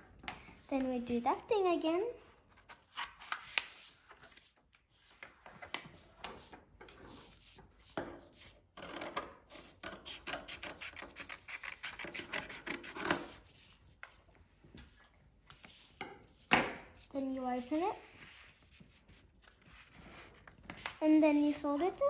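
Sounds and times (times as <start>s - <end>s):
scissors snipping paper: 10.0s - 13.3s
paper rubbed and creased: 17.7s - 22.0s.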